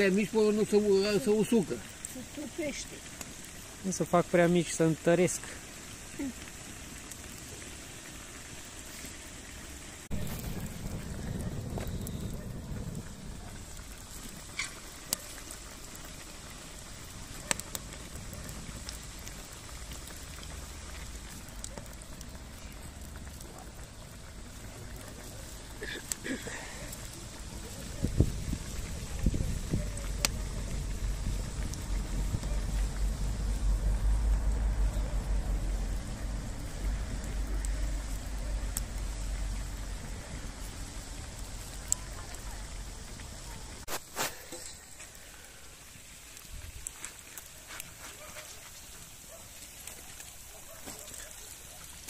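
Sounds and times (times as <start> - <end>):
pork fat sizzling: 0.0 - 52.0
low rumble: 10.0 - 14.5, 28.2 - 41.6.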